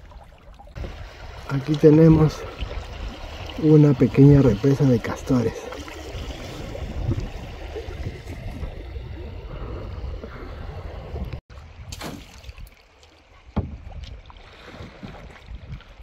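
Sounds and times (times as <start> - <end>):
water sloshing: 0.0 - 16.0
wind on microphone: 6.0 - 12.7, 13.8 - 16.0.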